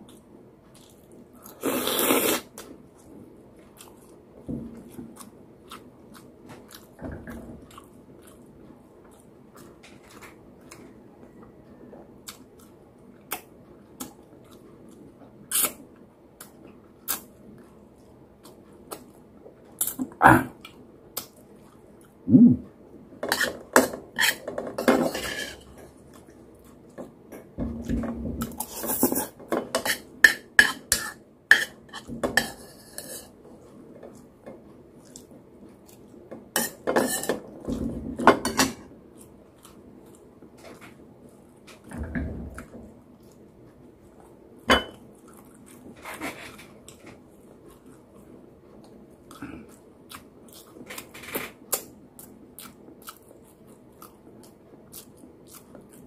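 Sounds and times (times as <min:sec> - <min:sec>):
chewing: 0:04.8 - 0:11.0, 0:43.1 - 0:56.0.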